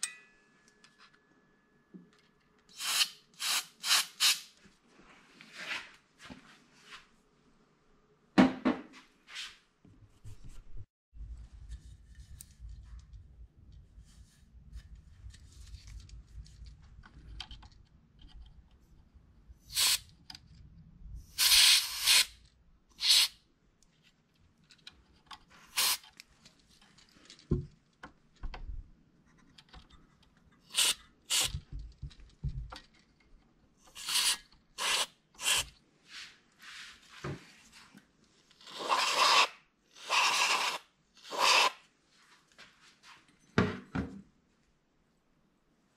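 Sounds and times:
rubbing and handling noise: 23.9 - 39.5.

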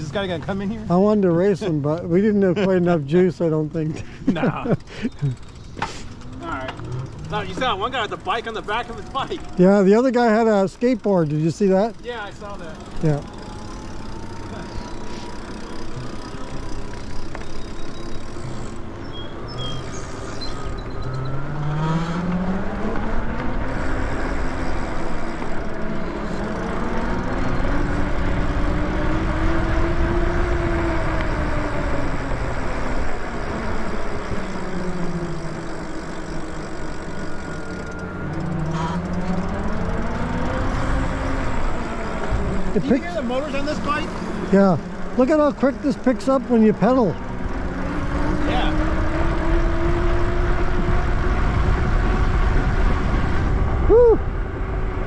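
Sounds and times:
wind and tyre noise: 0.0 - 55.0
electric motor whining: 11.9 - 53.8.

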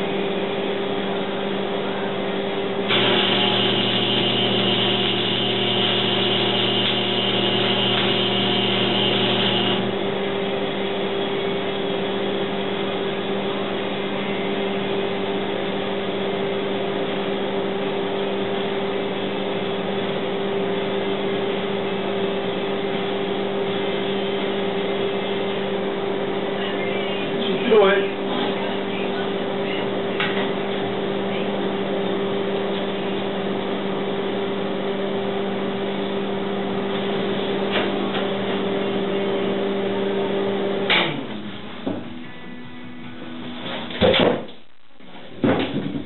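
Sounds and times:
electrical hum: 0.0 - 46.0
welding arc crackling: 2.9 - 10.0.

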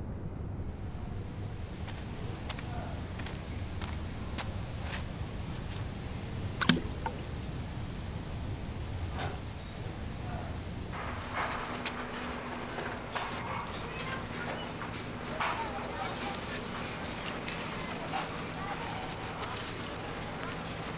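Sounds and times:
cricket trilling: 0.0 - 20.9
low night-time rumble: 0.1 - 20.9
low steady hum: 0.8 - 11.5
sharp click: 6.6 - 7.2.

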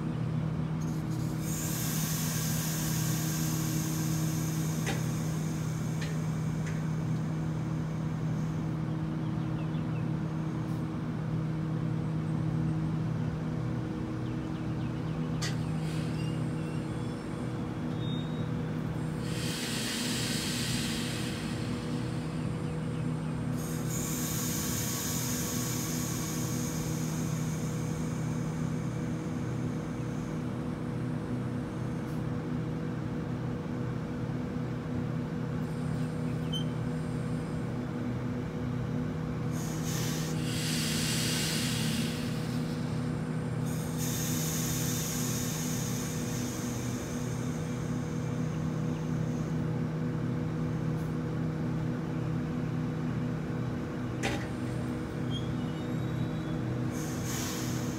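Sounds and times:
train equipment humming: 0.0 - 57.9
air hissing: 0.9 - 8.6, 15.4 - 30.5, 39.5 - 49.6, 54.2 - 57.9.

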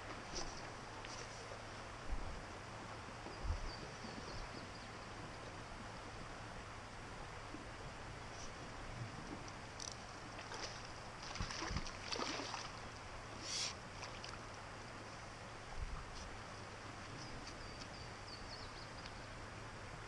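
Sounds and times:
creek flowing: 0.0 - 20.0
fish splashing in water: 10.4 - 12.9.

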